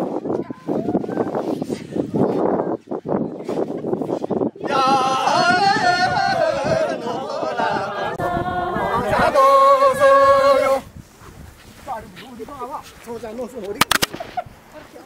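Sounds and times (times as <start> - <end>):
voices singing unaccompanied: 4.6 - 11.0.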